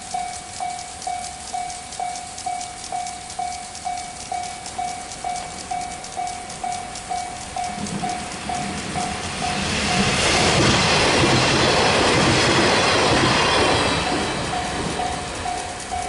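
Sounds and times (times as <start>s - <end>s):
level-crossing bell dinging: 0.0s - 12.0s, 12.7s - 16.0s
train wheels rumbling on rails: 0.0s - 16.0s.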